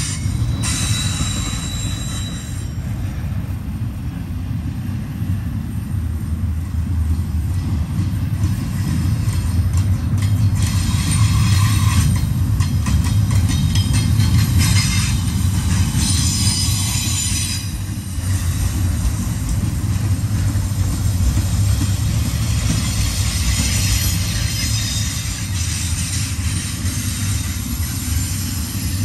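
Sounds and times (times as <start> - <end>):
high wheel squeal: 0.0 - 3.0, 10.6 - 12.3, 13.7 - 18.7, 22.4 - 29.0
freight train rumbling on rails: 0.0 - 29.0.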